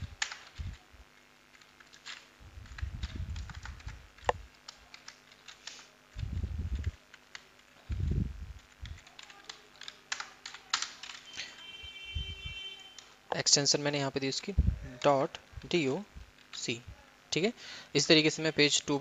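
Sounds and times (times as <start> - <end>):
keyboard typing: 0.0 - 0.8, 1.5 - 13.2.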